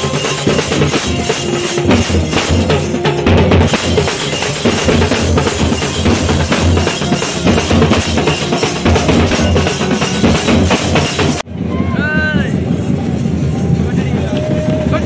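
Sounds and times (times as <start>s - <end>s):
bass drums beaten with sticks: 0.0s - 11.5s.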